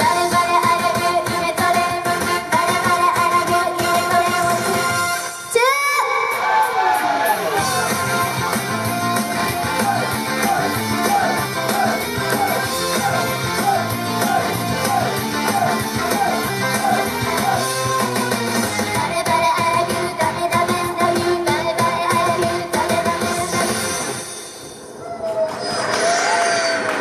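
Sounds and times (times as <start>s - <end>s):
upbeat pop song with electric guitar: 0.0s - 6.1s, 7.4s - 24.2s.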